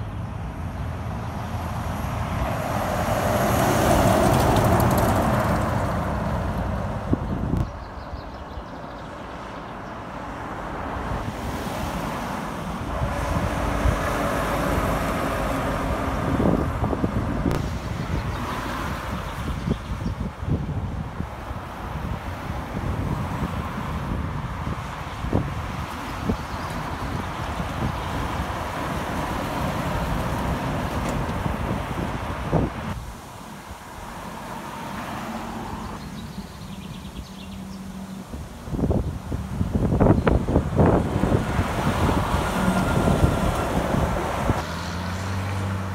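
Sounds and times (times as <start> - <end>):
car passing: 0.0 - 7.3, 9.0 - 19.8, 21.3 - 45.9
wind buffeting microphone: 0.0 - 9.1, 10.6 - 33.2, 35.8 - 45.9
truck passing close by: 0.6 - 7.5, 10.2 - 19.6, 34.0 - 45.9
heavy truck driving past: 40.8 - 45.9.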